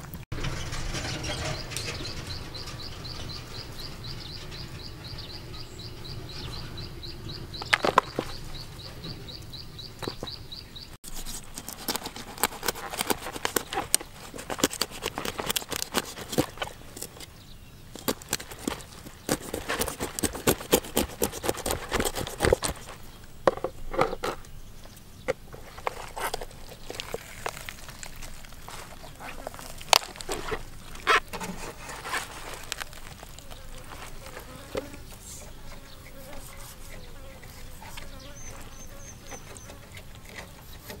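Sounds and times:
knife cutting poultry carcass: 11.0s - 17.3s, 18.0s - 23.0s
small clicks and crackles: 11.1s - 41.0s.

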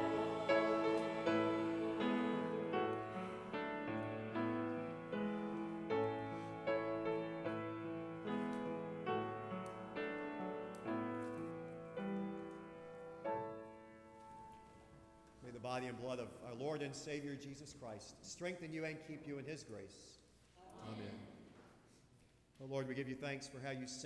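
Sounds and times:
piano playing slow chords: 0.0s - 15.3s.

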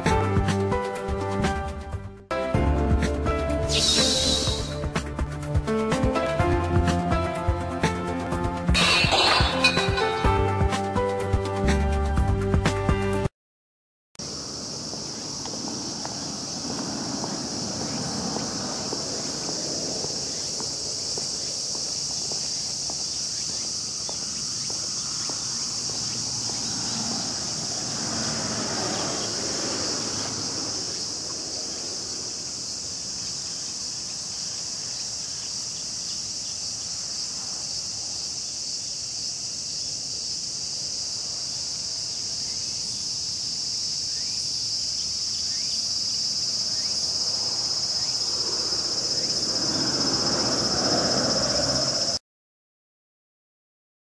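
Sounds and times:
insects buzzing: 3.4s - 8.2s, 8.8s - 11.1s, 14.2s - 52.2s
rushing noise: 3.6s - 5.0s, 23.8s - 33.5s, 46.5s - 52.2s.

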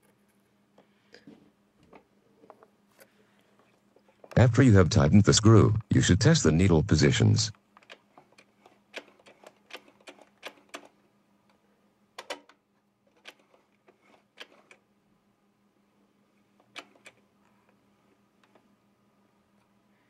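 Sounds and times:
faint steady hum: 0.0s - 20.0s
sewing machine needle clicks: 7.8s - 10.9s, 12.2s - 12.6s, 13.2s - 14.8s, 16.6s - 17.2s.

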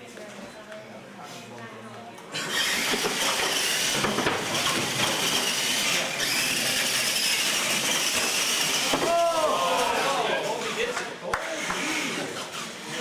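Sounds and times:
toy truck motor whine: 2.4s - 9.0s, 10.4s - 13.0s
tyre noise on concrete: 7.2s - 10.0s.

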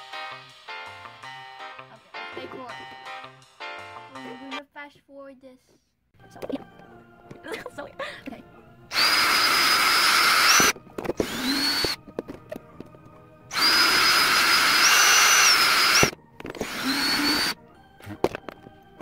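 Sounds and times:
electric drill whining: 8.9s - 12.0s, 13.5s - 18.4s.

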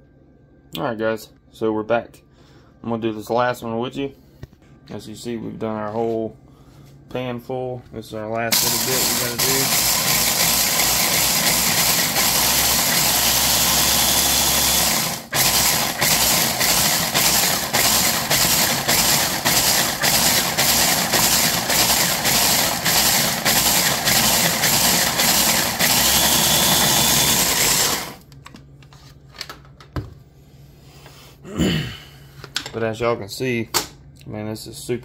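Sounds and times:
food processor grinding eggshells: 8.5s - 28.2s.

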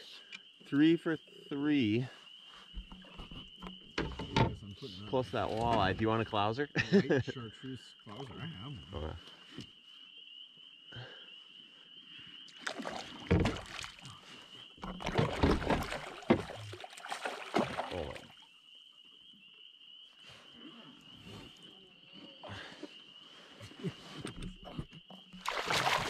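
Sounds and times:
fish splashing at water surface: 15.0s - 18.4s, 25.4s - 26.0s.

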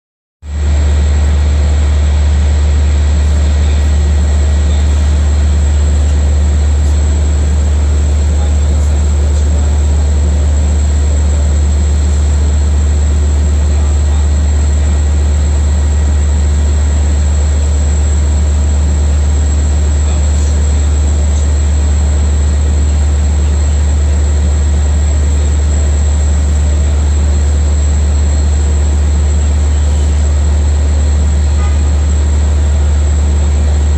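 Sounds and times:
low machine drone: 0.4s - 33.9s
faint high whine: 0.6s - 33.9s.

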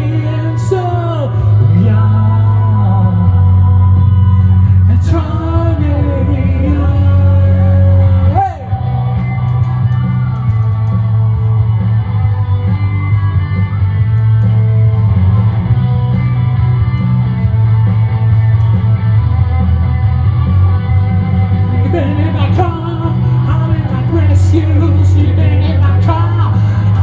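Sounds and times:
man singing: 0.0s - 9.2s, 21.7s - 27.0s
electric guitar: 0.0s - 27.0s
heavy bass line: 0.0s - 27.0s.

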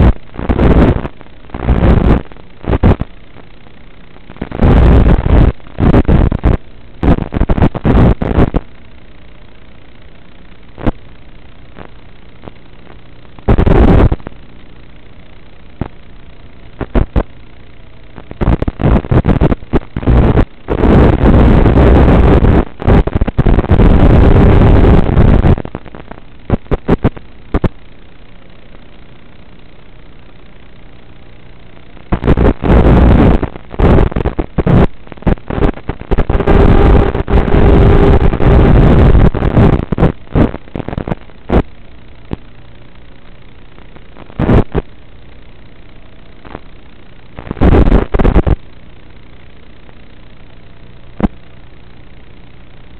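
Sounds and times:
bursts of static: 0.0s - 52.9s
steady whine: 0.0s - 52.9s.

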